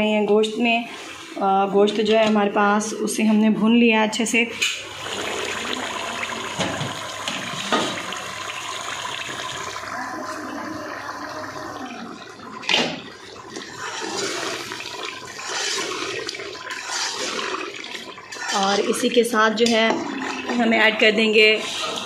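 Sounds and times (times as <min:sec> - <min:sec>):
spoon stirring: 0:13.6 - 0:22.0.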